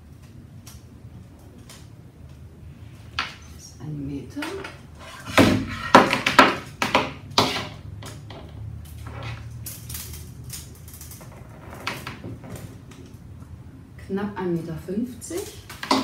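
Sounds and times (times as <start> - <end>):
low steady hum: 0.0 - 16.0
cable and tape measure rustling: 8.8 - 13.2.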